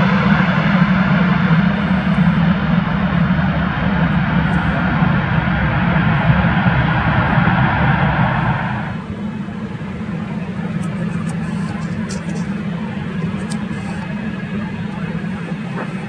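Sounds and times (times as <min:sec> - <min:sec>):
low rumble of jet engines: 0:00.0 - 0:16.0
jet noise rush: 0:03.3 - 0:16.0.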